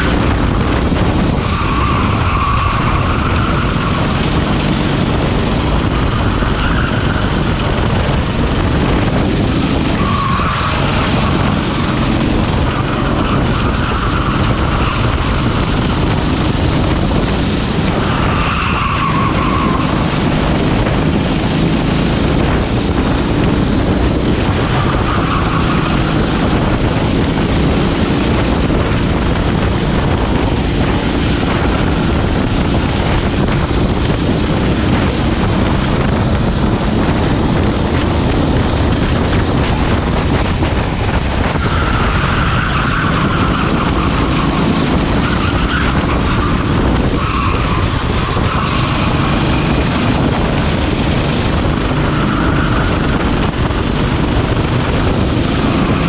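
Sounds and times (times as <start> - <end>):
racing kart engine running hard: 0.0 - 56.0
tyre squeals: 1.4 - 4.1, 10.0 - 15.8, 18.0 - 20.2, 24.6 - 26.2, 41.5 - 49.8, 52.1 - 53.2.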